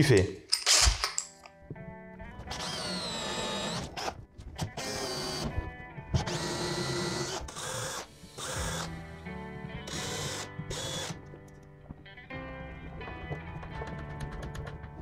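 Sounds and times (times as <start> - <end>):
cordless drill boring wood: 2.5 - 5.6, 6.2 - 11.2
cordless drill driving screws: 2.5 - 5.6, 6.2 - 9.2, 9.8 - 11.3.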